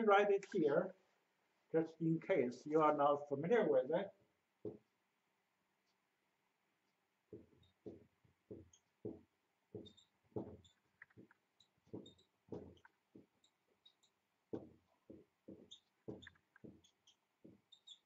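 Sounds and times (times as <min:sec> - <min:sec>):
marker writing on whiteboard: 0:06.9 - 0:18.0
felt tip squeaks: 0:09.8 - 0:14.2, 0:15.6 - 0:18.0.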